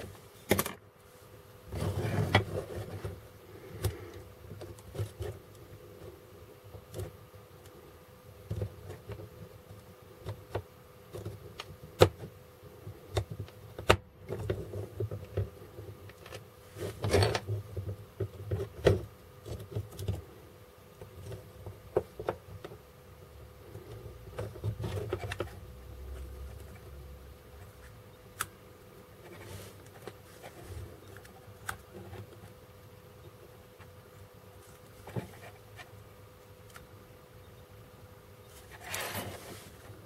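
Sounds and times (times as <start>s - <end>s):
faint steady hum: 0.0s - 40.0s
plastic parts clicking and knocking: 0.4s - 0.8s.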